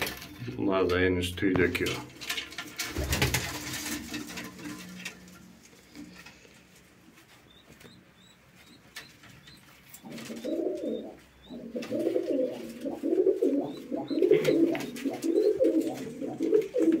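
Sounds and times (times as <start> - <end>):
pigeon cooing: 8.2 - 17.0.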